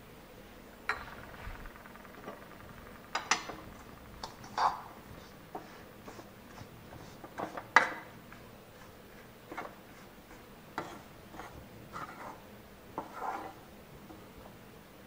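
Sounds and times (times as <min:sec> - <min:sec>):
steel spoon scraping a pan: 0:04.2 - 0:08.2, 0:08.8 - 0:13.7.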